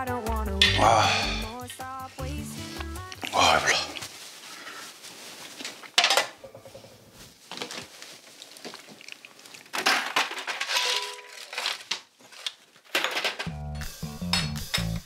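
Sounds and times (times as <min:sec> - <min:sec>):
rummaging in freezer: 0:02.3 - 0:13.5
plastic crinkling and clattering: 0:03.9 - 0:13.5.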